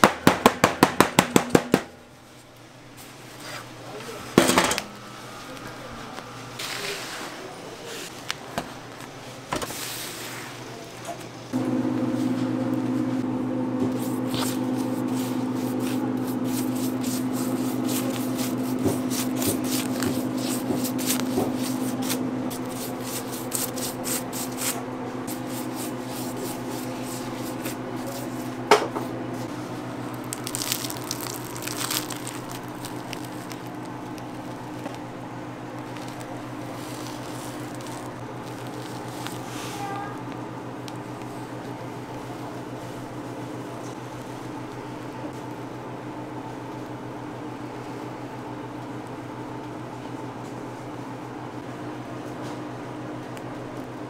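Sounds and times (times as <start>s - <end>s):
sharp knock: 0.0s - 2.0s
machine humming: 3.7s - 7.9s, 11.5s - 39.5s
crackling clicks and squishy noises: 30.1s - 35.1s, 35.7s - 39.6s.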